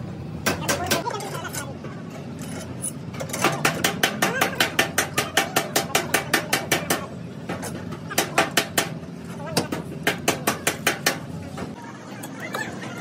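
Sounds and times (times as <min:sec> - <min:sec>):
hammer striking metal: 0:09.6 - 0:11.7.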